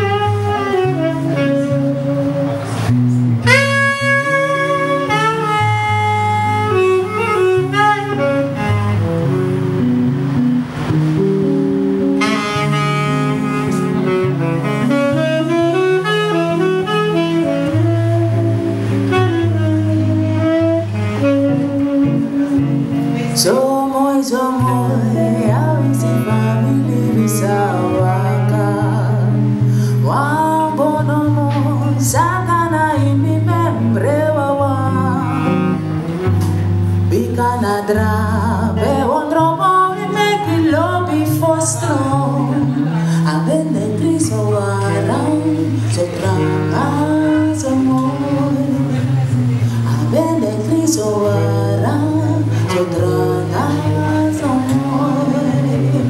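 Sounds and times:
woman singing: 0.0 - 2.6, 14.8 - 35.9, 37.1 - 56.0
electric bass line: 0.0 - 56.0
tenor saxophone melody: 0.0 - 56.0.

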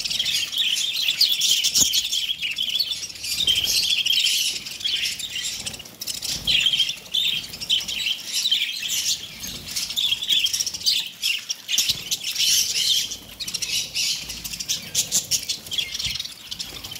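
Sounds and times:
budgerigars chattering: 0.0 - 16.9.

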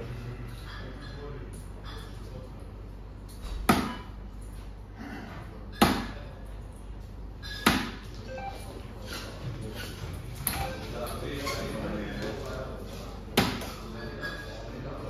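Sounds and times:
darts hitting electronic dartboard: 3.4 - 4.1, 5.7 - 6.2, 7.4 - 8.1, 13.4 - 13.8.

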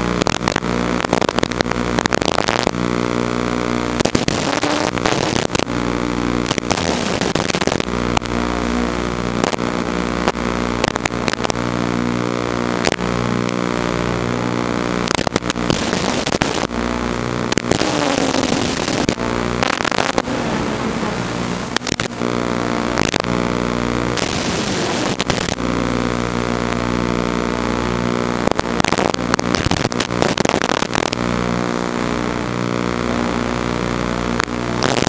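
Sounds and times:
static crackles: 0.0 - 35.0
drone motors whining: 15.0 - 25.9.

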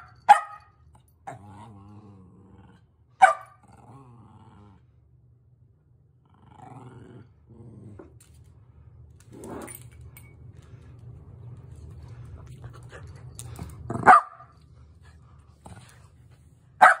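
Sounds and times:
dog barking: 0.0 - 0.7, 3.2 - 3.6, 14.0 - 14.5, 16.8 - 17.0
dog growling: 1.3 - 2.9, 3.6 - 4.9, 6.2 - 8.2.

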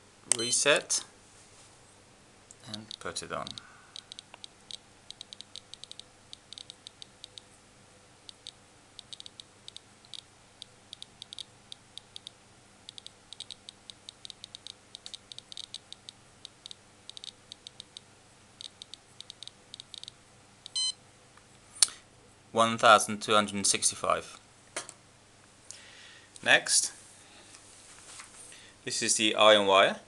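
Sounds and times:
ion tester clicking rapidly: 2.8 - 7.5, 8.3 - 20.8.

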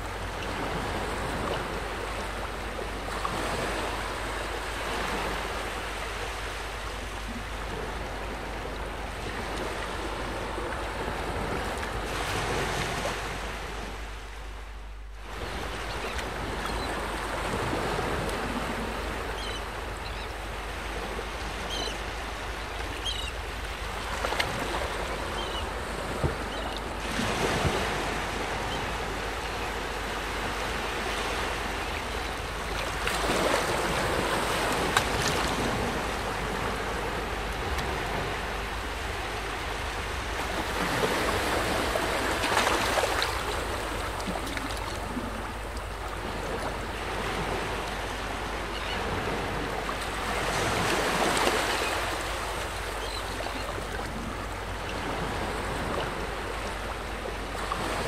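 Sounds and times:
small waves washing in: 0.0 - 58.0.

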